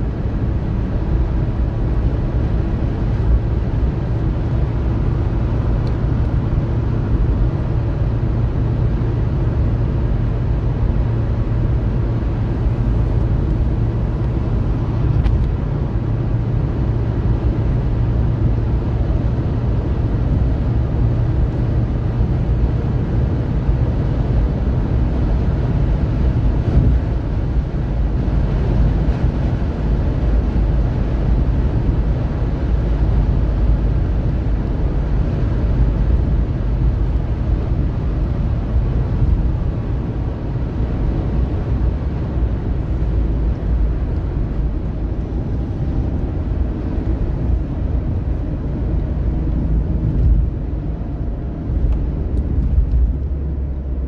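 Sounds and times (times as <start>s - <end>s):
car engine at highway speed: 0.0s - 54.0s
road noise: 0.0s - 54.0s.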